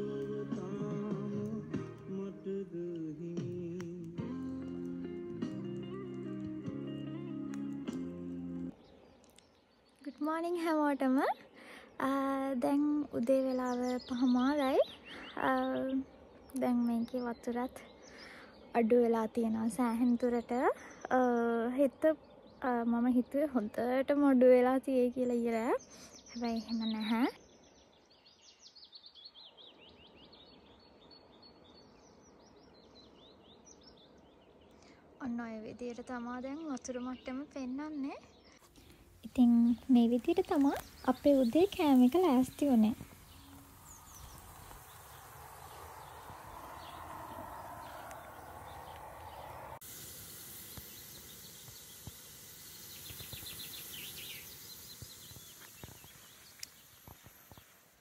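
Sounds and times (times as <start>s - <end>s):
faint birdsong chirps: 0.0s - 58.0s
soft steady hiss: 29.7s - 58.0s
low rushing noise: 39.0s - 51.7s
rapid bird trill: 39.3s - 58.0s.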